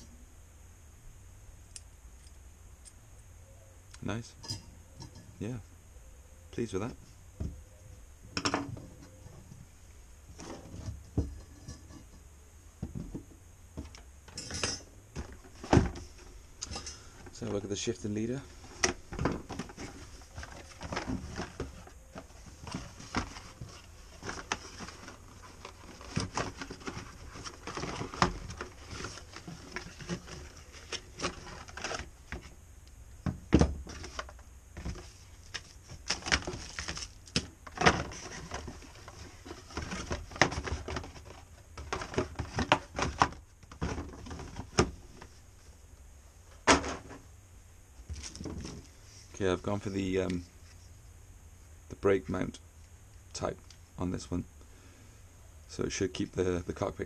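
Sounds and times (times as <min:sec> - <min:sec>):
cardboard scraping and rustling: 0:10.3 - 0:12.2, 0:15.1 - 0:32.6, 0:33.6 - 0:45.4, 0:48.0 - 0:49.4.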